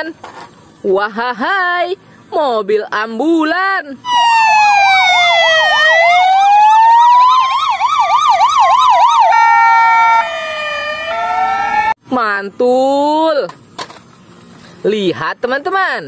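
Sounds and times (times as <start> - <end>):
ambulance sirens wailing: 4.0 - 12.0
fast warbling siren yelp: 4.0 - 12.0
two-tone hi-lo siren: 4.0 - 12.0.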